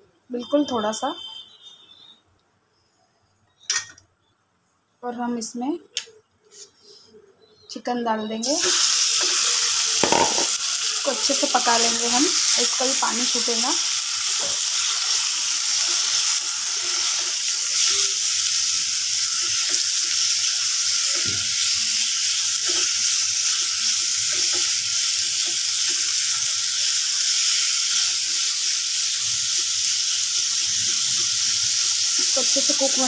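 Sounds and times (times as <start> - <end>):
chicken sizzling in oil: 8.4 - 33.0.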